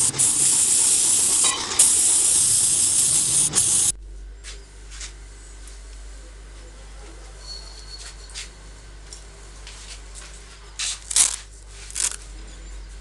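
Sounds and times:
paint spray hissing: 0.0 - 4.0.

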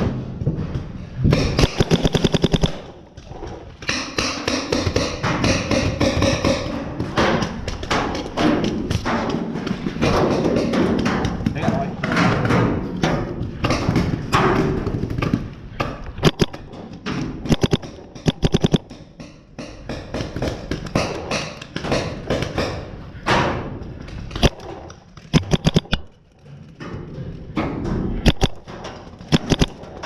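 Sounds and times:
paintball markers firing: 1.3 - 7.6, 13.6 - 22.7, 24.3 - 26.2, 28.2 - 30.0.

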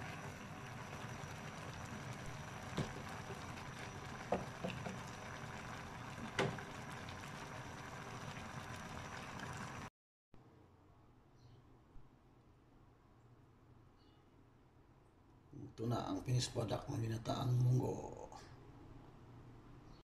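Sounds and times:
beans simmering in a pan: 0.0 - 9.9.

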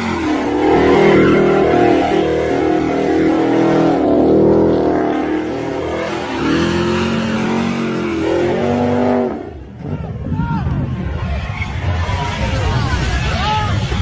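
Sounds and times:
car engine revving: 0.0 - 9.8.

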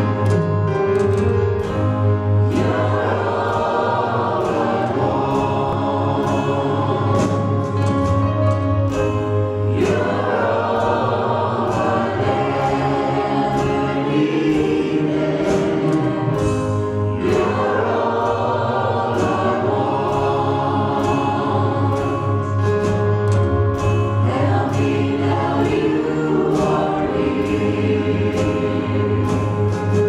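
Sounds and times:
women singing: 9.7 - 22.4, 24.2 - 29.8.

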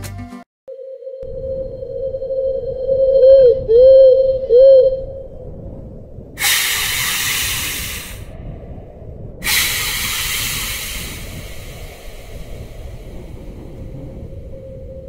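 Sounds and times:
steady low rumble: 1.2 - 15.0
long hisses: 6.4 - 8.6, 9.4 - 15.0.

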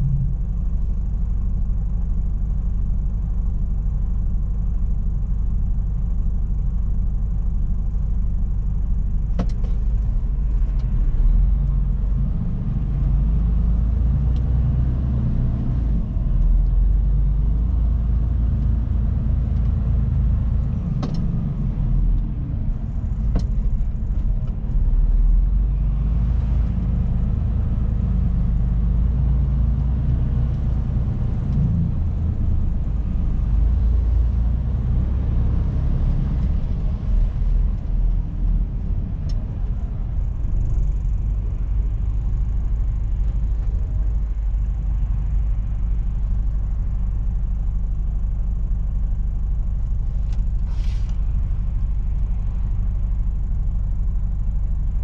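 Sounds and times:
diesel engine rumble: 0.0 - 55.0.

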